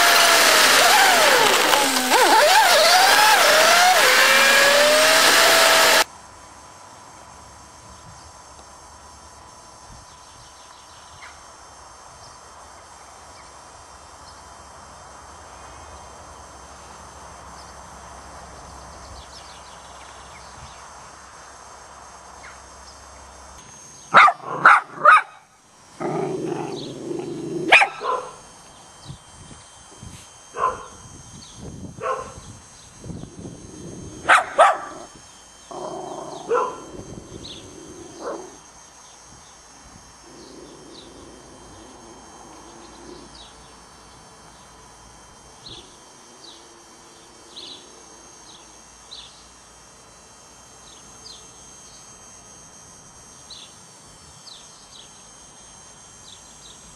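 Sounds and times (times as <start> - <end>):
dog barking: 24.2 - 25.4, 27.7 - 28.4, 30.6 - 30.9, 32.0 - 32.4, 34.3 - 35.0, 36.5 - 36.8.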